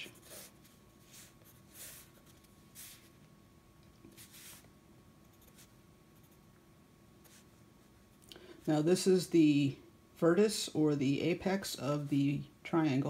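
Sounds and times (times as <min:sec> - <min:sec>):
pencil scratching on paper: 0:00.0 - 0:03.1.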